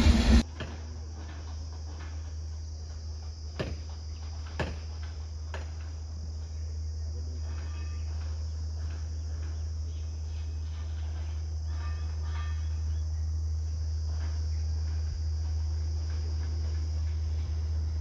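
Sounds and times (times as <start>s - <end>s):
low rumble: 0.0s - 0.4s
insects chirring: 0.2s - 18.0s.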